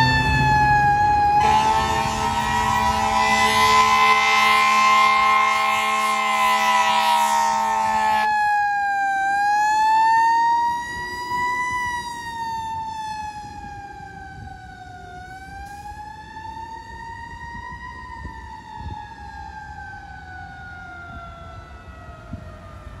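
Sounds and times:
air horn blaring: 0:00.0 - 0:08.4
fire engine siren wailing: 0:00.0 - 0:23.0.

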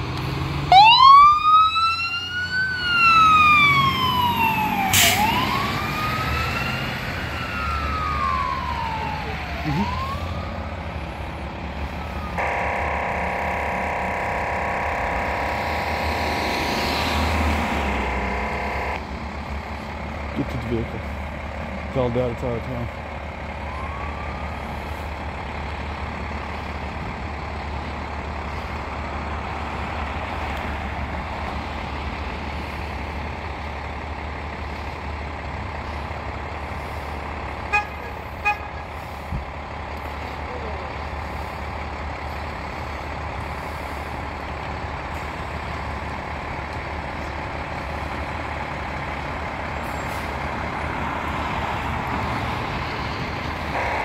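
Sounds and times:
diesel engine running: 0:02.7 - 0:54.0
horn beeps: 0:12.4 - 0:15.9, 0:17.9 - 0:19.0, 0:53.8 - 0:54.0.

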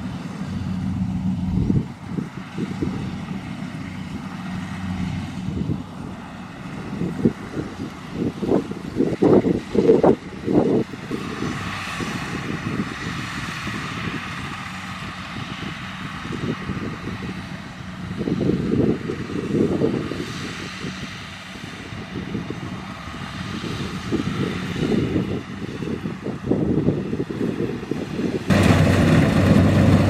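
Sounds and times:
combine harvester engine and threshing: 0:00.0 - 0:30.0
low rumble: 0:28.5 - 0:30.0.

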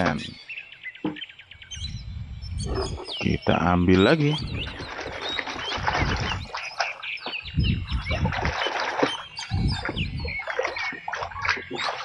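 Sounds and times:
birds chirping: 0:00.0 - 0:12.0
water splashing in a tub: 0:04.2 - 0:12.0.

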